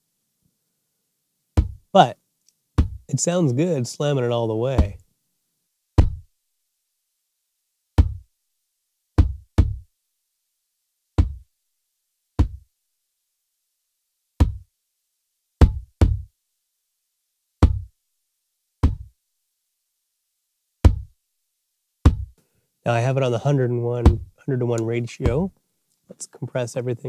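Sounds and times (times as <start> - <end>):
compressed kick drum hits: 1.6 - 1.8, 2.8 - 3.1, 6.0 - 6.3, 8.0 - 8.2, 9.2 - 9.8, 11.2 - 11.4, 12.4 - 12.6, 14.4 - 14.6, 15.6 - 16.3, 17.6 - 17.9, 18.8 - 19.1, 20.8 - 21.1, 22.0 - 22.4, 24.0 - 24.3, 25.2 - 25.5.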